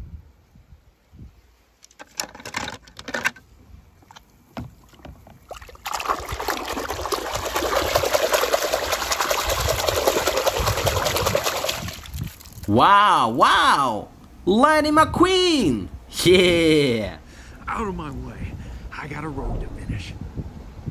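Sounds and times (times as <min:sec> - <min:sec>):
water splashing and sloshing: 0:04.0 - 0:12.7.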